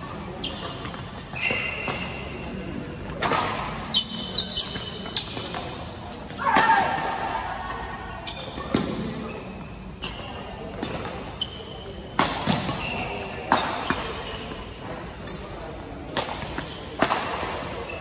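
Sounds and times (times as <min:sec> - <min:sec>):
court shoes squeaking: 0:00.0 - 0:18.0
racket hitting shuttlecock: 0:00.5 - 0:05.8, 0:12.1 - 0:14.6, 0:16.1 - 0:17.8.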